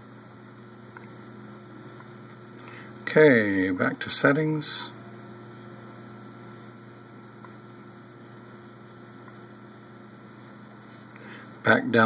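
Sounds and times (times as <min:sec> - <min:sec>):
low electrical hum: 0:00.0 - 0:12.0.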